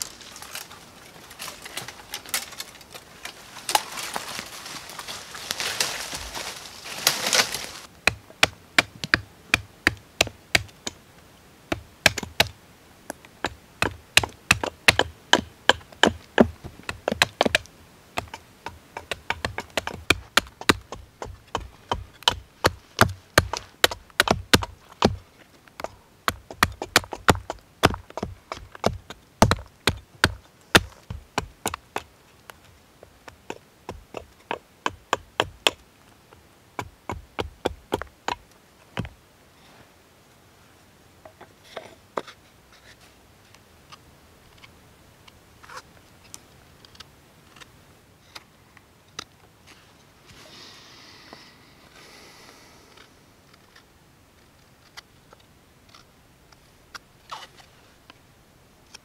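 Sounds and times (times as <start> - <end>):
hatchet chopping wood: 8.0 - 11.0, 11.7 - 12.6, 13.4 - 25.2, 25.8 - 32.1, 33.5 - 35.8, 36.8 - 38.4.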